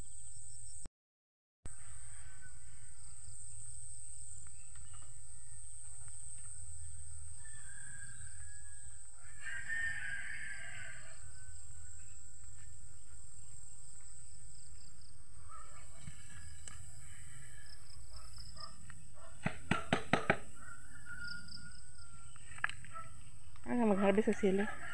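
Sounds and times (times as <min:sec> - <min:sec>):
rooster crowing: 0:01.7 - 0:03.2, 0:07.3 - 0:12.1, 0:20.4 - 0:22.3, 0:24.0 - 0:24.9.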